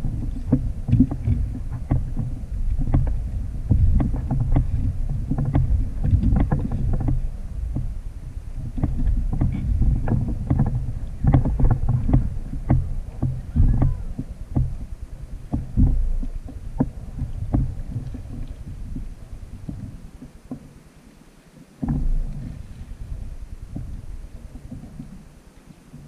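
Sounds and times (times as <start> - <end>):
fish thumping on a plastic hull: 8.7 - 14.8.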